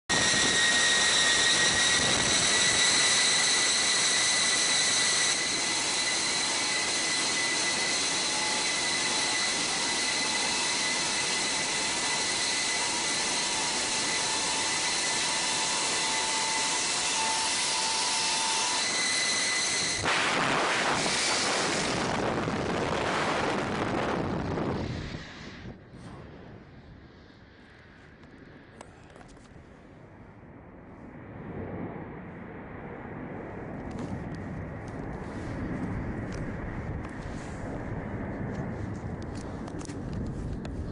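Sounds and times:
jet engines with turbine whine: 0.0 - 40.9
gusty rush of wind: 0.1 - 17.8, 18.6 - 40.9.

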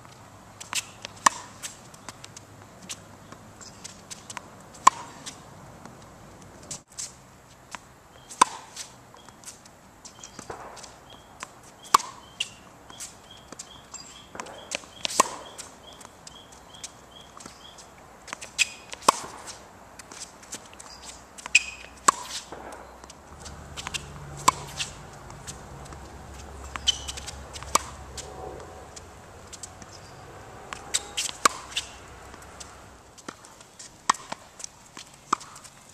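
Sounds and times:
tennis ball struck by racket: 0.6 - 2.2, 3.3 - 5.4, 8.4 - 9.3, 10.1 - 17.6, 18.3 - 35.7
shoe scuffs: 8.2 - 35.9
ball bouncing on hard court: 10.1 - 12.6, 13.3 - 17.6, 20.8 - 33.5.

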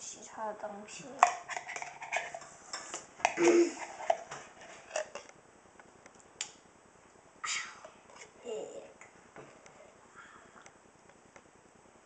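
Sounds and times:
metal spoon scraping ceramic bowl: 1.2 - 5.3.

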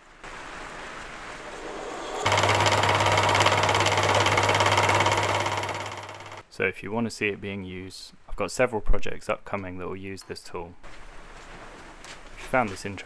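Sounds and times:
gear and belt noise: 1.4 - 6.4
lathe motor hum: 2.1 - 6.4.

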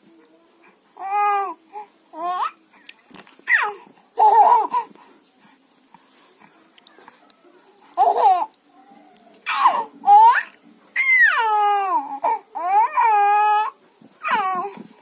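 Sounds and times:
baby cooing and squealing: 3.5 - 4.7, 9.5 - 14.8.

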